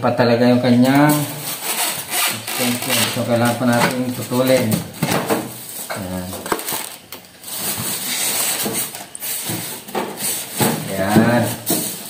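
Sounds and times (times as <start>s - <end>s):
plastic wrap crinkling: 0.9s - 12.0s
person speaking: 2.4s - 5.0s, 5.9s - 6.7s, 10.6s - 11.7s.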